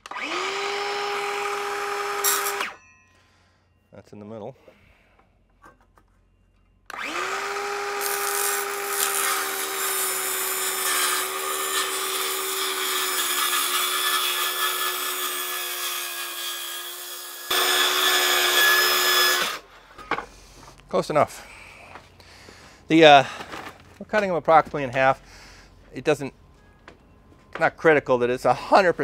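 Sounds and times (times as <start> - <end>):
circular saw cutting wood: 0.0 - 2.8, 6.9 - 19.7.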